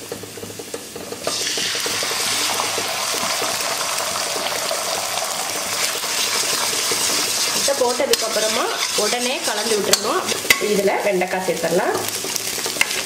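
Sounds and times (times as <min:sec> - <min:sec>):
egg sizzling in hot oil: 0:00.0 - 0:13.0
leaves crackling in hot oil: 0:00.0 - 0:13.0.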